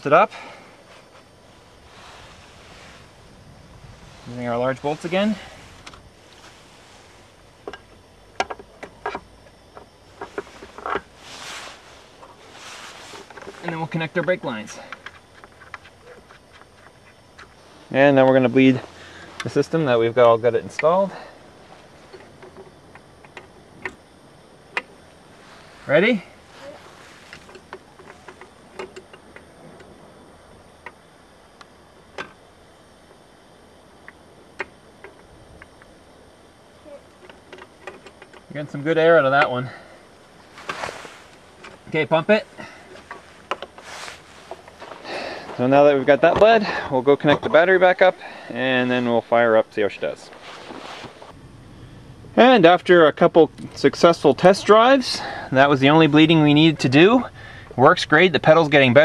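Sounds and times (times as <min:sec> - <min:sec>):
brief rustling hiss: 0:10.5 - 0:13.6, 0:50.3 - 0:51.3.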